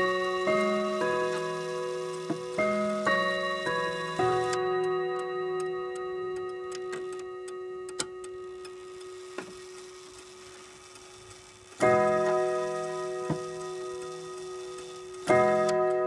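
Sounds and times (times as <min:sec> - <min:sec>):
clock chiming on chime rods: 0:00.0 - 0:16.0
clock ticking: 0:00.0 - 0:16.0.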